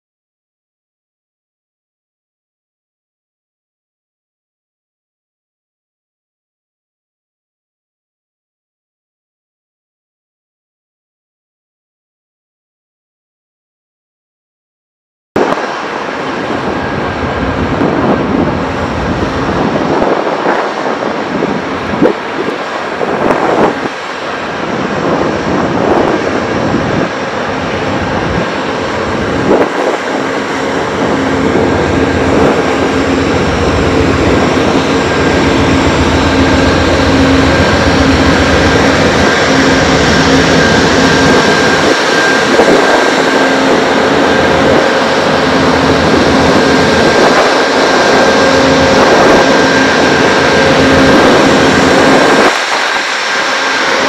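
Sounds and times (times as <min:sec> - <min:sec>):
high whine: 0:15.4 - 0:54.0
locomotive engine idling: 0:30.8 - 0:41.9.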